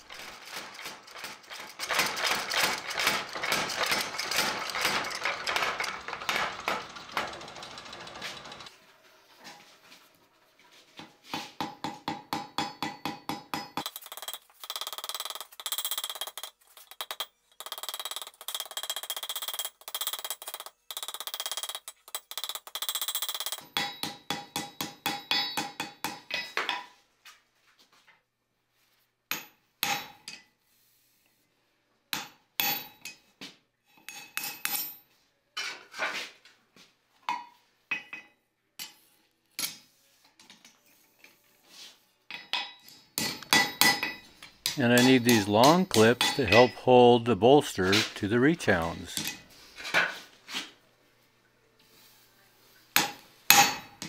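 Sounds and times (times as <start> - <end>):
hammer striking iron on anvil: 11.4 - 13.8, 23.8 - 26.8, 29.3 - 30.4, 32.1 - 33.2, 42.3 - 46.7, 53.0 - 54.0
anvil ringing: 43.2 - 49.4.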